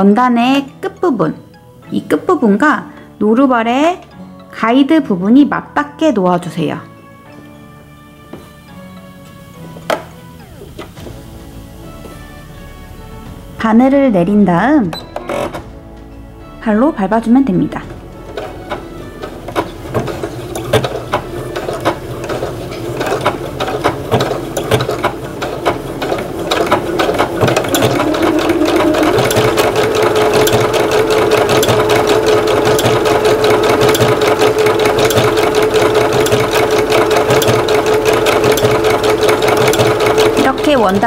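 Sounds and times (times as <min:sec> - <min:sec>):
sewing machine motor hum: 0:18.0 - 0:41.0
sewing machine needle clatter: 0:18.4 - 0:41.0.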